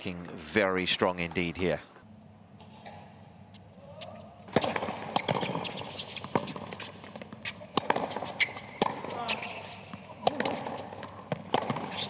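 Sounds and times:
light background hum: 0.0s - 12.0s
tennis ball bouncing on court: 4.4s - 12.0s.

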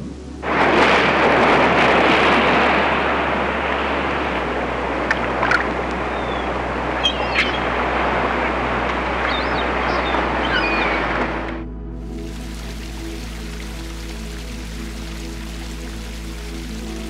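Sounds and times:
loud rushing noise: 0.4s - 9.7s.

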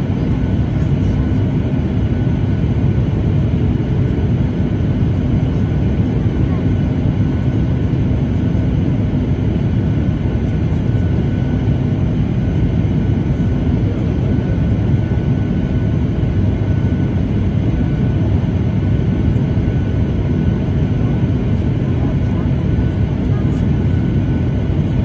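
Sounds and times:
jet engine cabin rumble: 0.0s - 25.0s.

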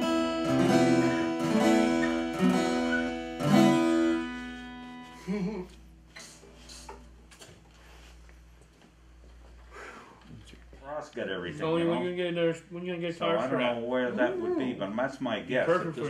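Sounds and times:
acoustic guitars strumming: 0.0s - 7.4s.

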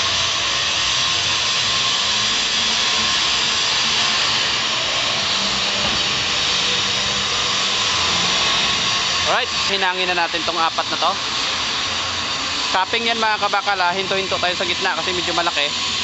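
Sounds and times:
welding arc hissing: 0.0s - 16.0s.

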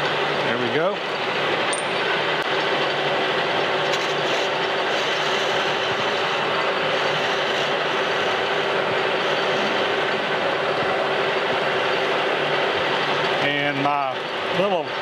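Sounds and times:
metal lathe machining: 0.0s - 15.0s
low hum: 4.7s - 13.4s.

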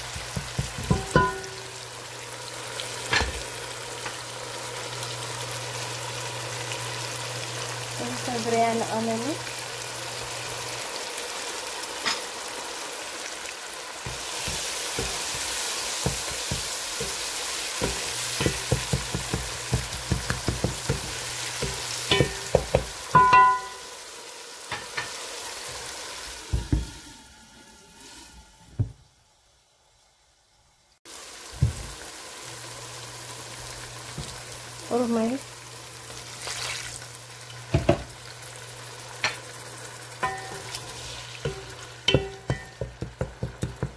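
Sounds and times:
food sizzling in a pot: 0.0s - 43.9s
short ringing clink: 23.2s - 23.9s.

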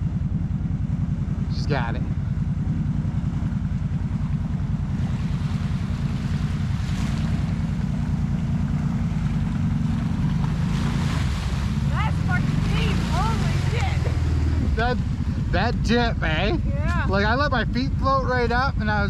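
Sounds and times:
off-road vehicle engine running: 0.0s - 19.0s
water splashing and sloshing: 2.9s - 15.4s.

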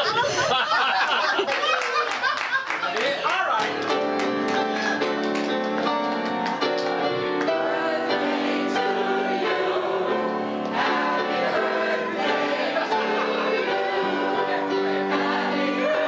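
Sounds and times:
choir singing held notes: 7.5s - 16.0s.

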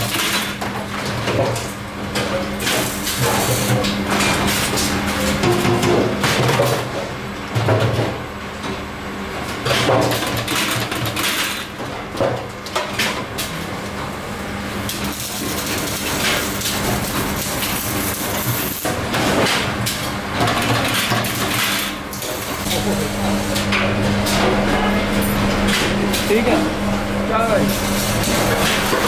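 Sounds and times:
steady low hum: 22.0s - 29.0s.

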